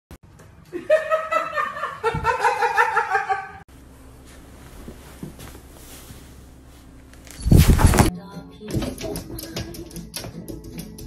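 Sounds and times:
person laughing: 0.7s - 3.6s.

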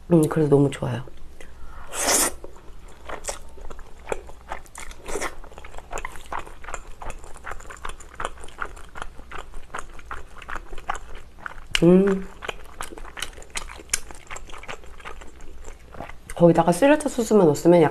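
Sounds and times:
slurping noodles: 1.8s - 2.5s
wet chewing: 2.0s - 17.2s.

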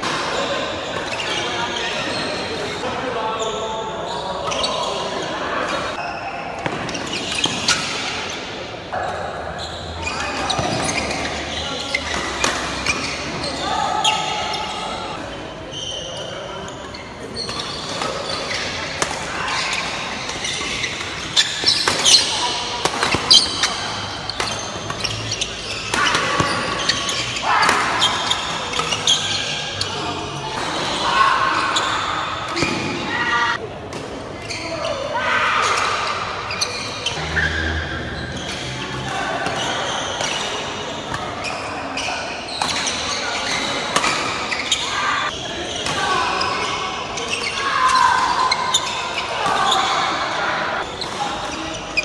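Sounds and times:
sports shoes squeaking on court: 0.9s - 2.8s, 3.4s - 8.5s, 9.1s - 31.0s, 34.4s - 35.0s, 35.8s - 50.2s, 50.8s - 52.0s
racket hitting shuttlecock: 20.7s - 25.0s.

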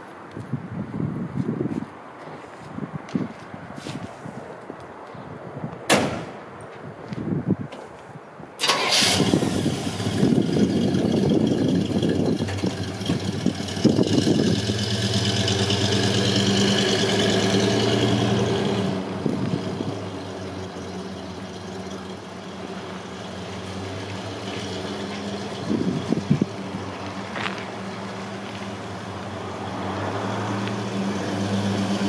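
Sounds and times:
truck engine starting and running: 8.6s - 32.0s.

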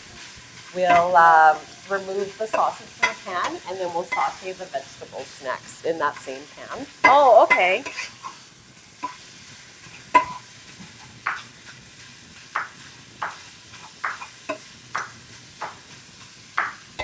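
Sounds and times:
utensil knocking on frying pan: 2.5s - 4.4s, 10.1s - 10.4s, 12.5s - 15.9s, 16.5s - 17.0s.

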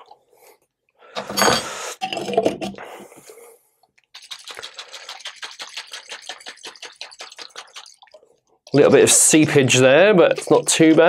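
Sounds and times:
powder spooned into jar: 4.1s - 11.0s.

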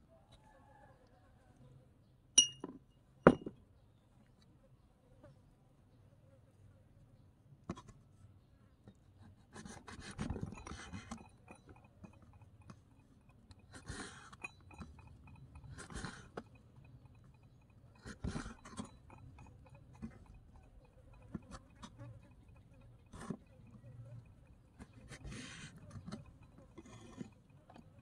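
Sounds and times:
knife scraping wet food: 13.3s - 28.0s.

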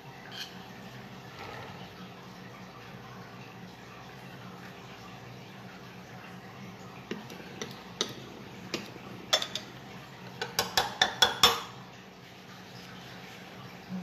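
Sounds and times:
metal spatula tapping utensils: 7.1s - 11.7s.

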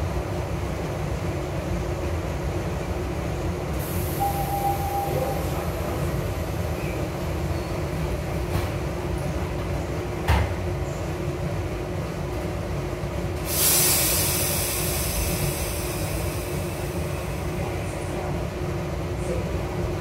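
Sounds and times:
train low hum: 0.0s - 20.0s
air brakes hissing: 3.8s - 5.6s, 13.4s - 17.7s.

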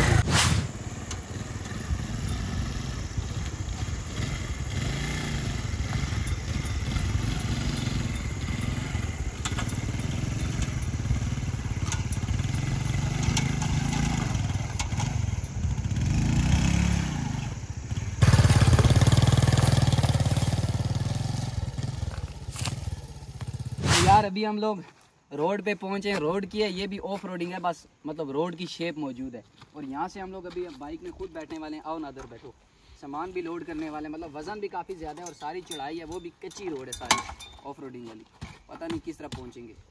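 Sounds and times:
motorcycle engine revving: 0.0s - 24.2s.

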